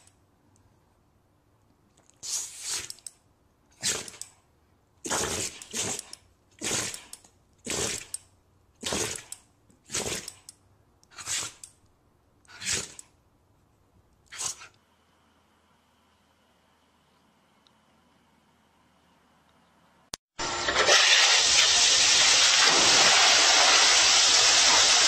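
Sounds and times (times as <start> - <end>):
dog sneezing: 11.1 - 11.6, 14.3 - 14.7.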